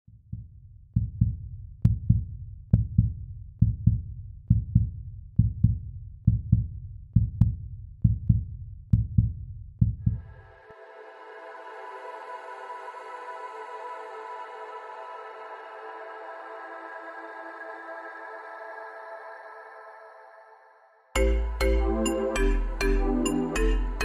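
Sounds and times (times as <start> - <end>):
heartbeat thumps: 0.1 - 10.4.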